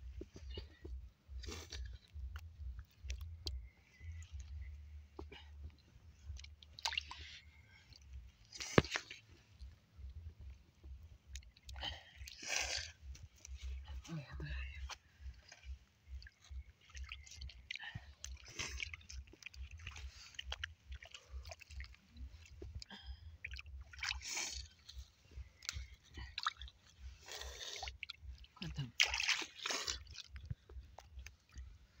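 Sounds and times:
water sloshing: 0:00.2 - 0:09.8, 0:10.4 - 0:32.0
hands splashing in muddy puddle: 0:25.5 - 0:31.5.

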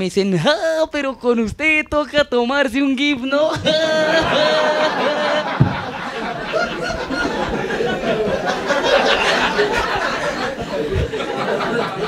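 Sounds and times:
audience laughing: 0:03.5 - 0:12.0.

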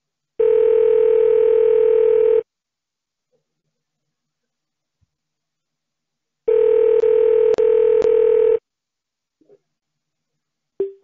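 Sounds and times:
telephone ringing tone: 0:00.4 - 0:02.4, 0:06.5 - 0:08.6.

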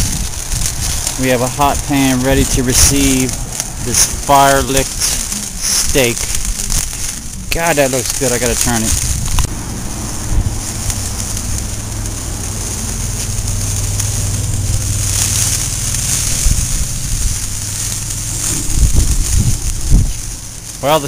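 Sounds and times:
fire hissing under grill: 0:00.0 - 0:21.0
wind buffeting microphone: 0:00.0 - 0:21.0
low hum: 0:08.9 - 0:20.8.

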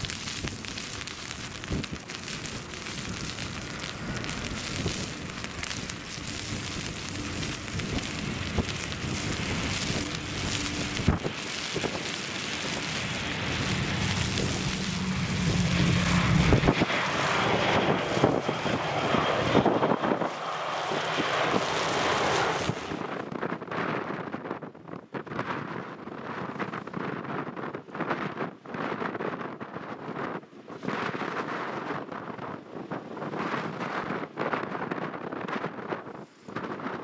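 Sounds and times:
rain: 0:00.0 - 0:23.2
jet engines running: 0:00.0 - 0:23.4
wind buffeting microphone: 0:00.0 - 0:37.0.

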